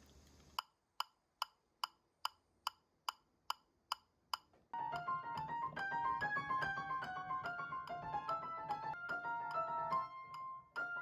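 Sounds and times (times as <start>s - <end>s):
metronome clicking: 0.6s - 11.0s
piano playing: 4.8s - 11.0s.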